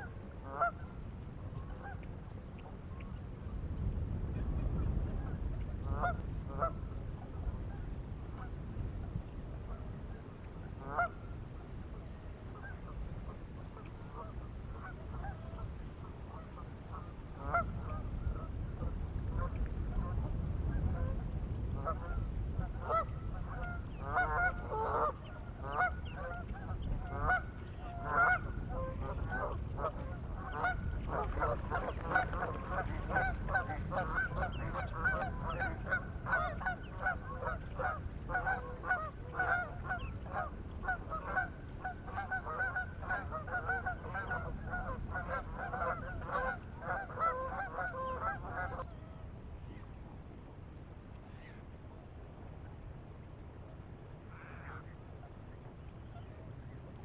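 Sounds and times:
waterfowl honking: 0.0 - 1.0, 1.6 - 2.1, 5.9 - 6.8, 10.8 - 11.2, 13.8 - 15.7, 16.3 - 18.5, 21.8 - 49.2, 54.3 - 55.4.

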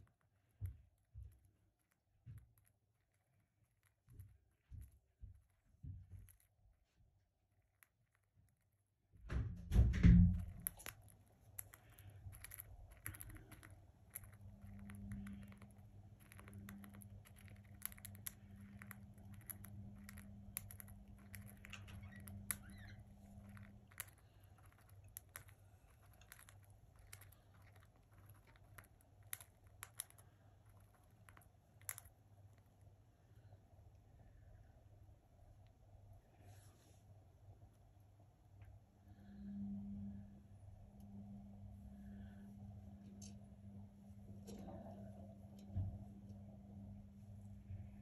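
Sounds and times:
low steady hum: 0.0 - 48.0
thump: 9.3 - 10.5
bird beak cracking seeds: 10.1 - 32.7.

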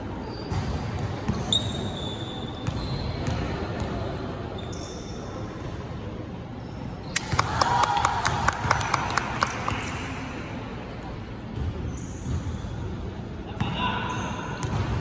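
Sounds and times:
sneaker squeaks: 0.2 - 3.9, 4.5 - 5.7, 11.6 - 12.8
basketball bouncing on court: 2.6 - 4.0, 14.6 - 15.0.

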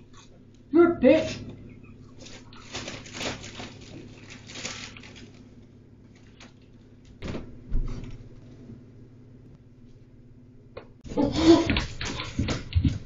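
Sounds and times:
plastic snack bag crinkling: 2.2 - 7.0.

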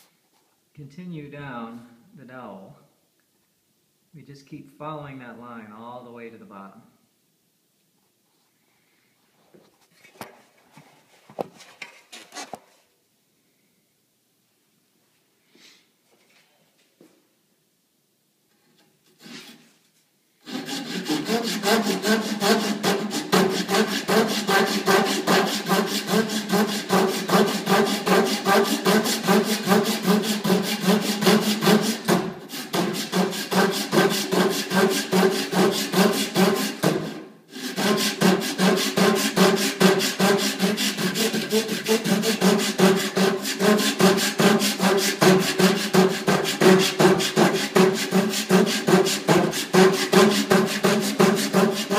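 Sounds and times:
saw rasping through wood: 20.4 - 51.9.

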